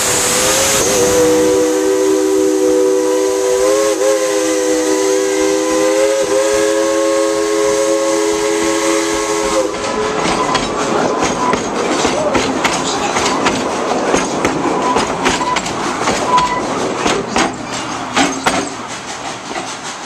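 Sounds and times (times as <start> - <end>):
steam locomotive chime whistle: 0.0 - 10.7
train wheels clattering on rail joints: 9.1 - 20.0.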